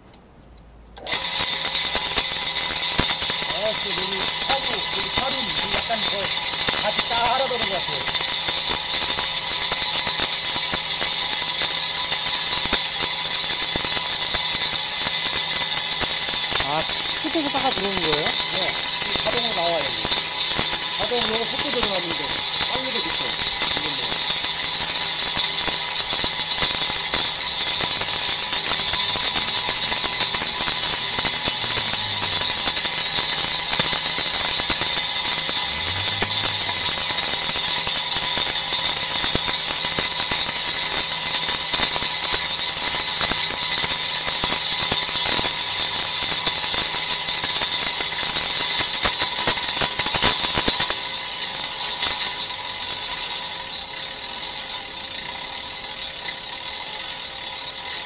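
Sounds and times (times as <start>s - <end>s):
brake lathe machining hiss: 1.1s - 52.3s
motor whine: 15.0s - 43.8s.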